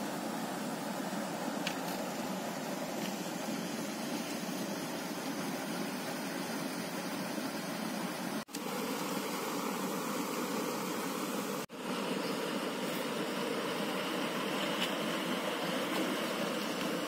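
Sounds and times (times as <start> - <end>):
water rushing over a weir: 10.7 - 17.0.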